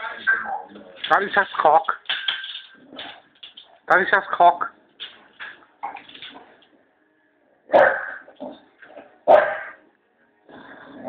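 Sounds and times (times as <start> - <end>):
dog barks: 7.7 - 9.8.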